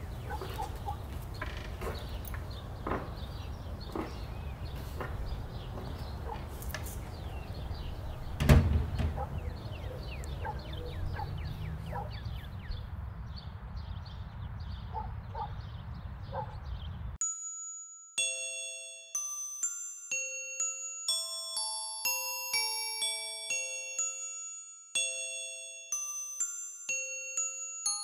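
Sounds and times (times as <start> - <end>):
small birds chirping: 0.0 - 17.2
door shutting with a thump: 8.4 - 9.4
high chiming tune: 17.2 - 28.0.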